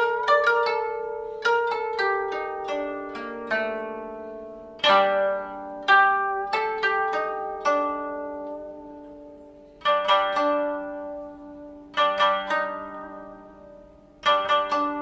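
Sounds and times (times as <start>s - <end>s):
plucked string music: 0.0s - 15.0s.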